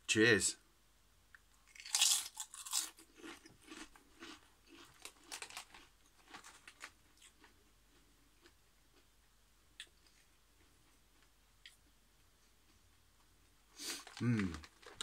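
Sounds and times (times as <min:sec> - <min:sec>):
crisp crunching while chewed: 0:01.7 - 0:08.6.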